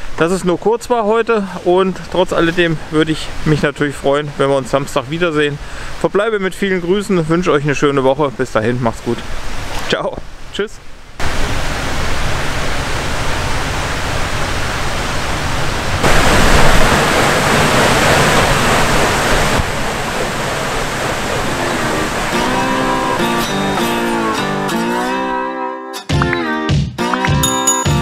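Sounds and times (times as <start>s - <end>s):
steady rushing noise: 11.2s - 23.8s
guitar music: 21.4s - 28.0s.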